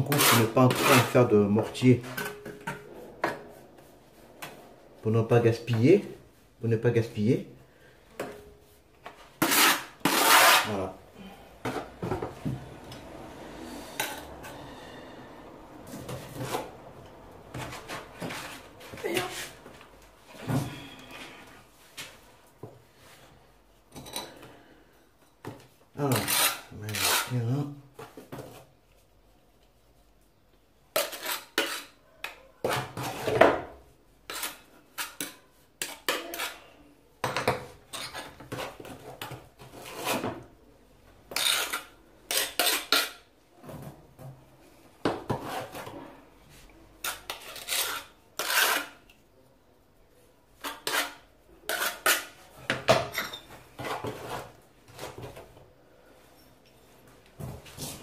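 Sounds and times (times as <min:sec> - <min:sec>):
mortar scraping: 0:00.0 - 0:06.5, 0:09.1 - 0:11.0, 0:26.0 - 0:27.6, 0:30.9 - 0:32.0, 0:32.6 - 0:36.7, 0:37.8 - 0:40.5, 0:41.3 - 0:43.3, 0:46.6 - 0:49.1, 0:50.6 - 0:55.5.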